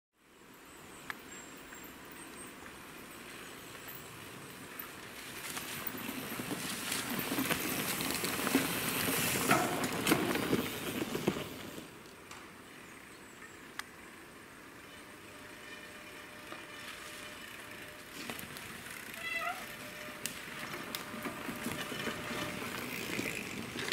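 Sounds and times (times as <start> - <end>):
bike tyres rushing on dirt: 1.3 - 23.9
bike clicks and rattles: 3.3 - 12.6, 16.4 - 23.9.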